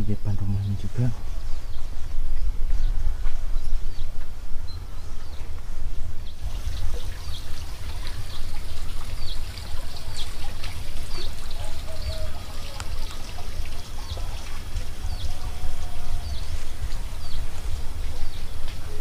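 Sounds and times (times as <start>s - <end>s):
water trickling into pond: 3.5s - 19.0s
bird chirping: 6.2s - 19.0s.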